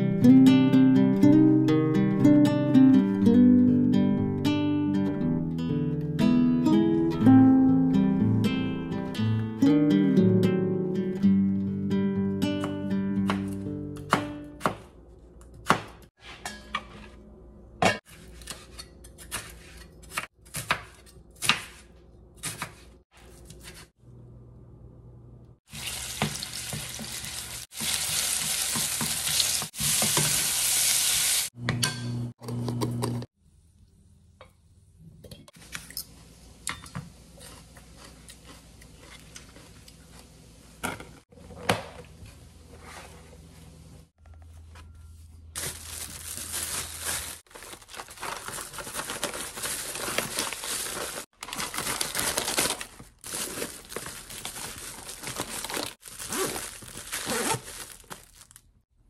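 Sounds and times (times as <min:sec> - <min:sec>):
bacon sizzling in a frying pan: 0:25.7 - 0:31.6
rustling and crinkling: 0:42.2 - 0:58.7.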